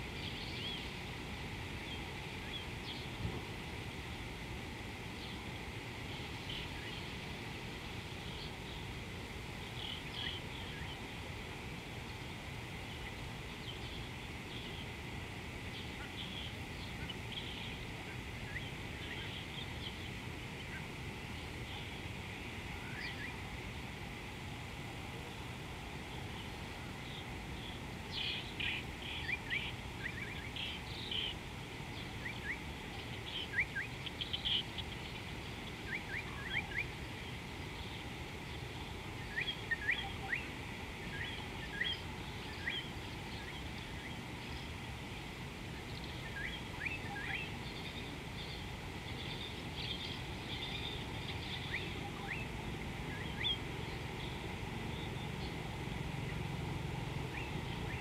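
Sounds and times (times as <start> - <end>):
low background noise: 0.0 - 58.0
birds chirping: 8.2 - 11.5, 25.2 - 58.0.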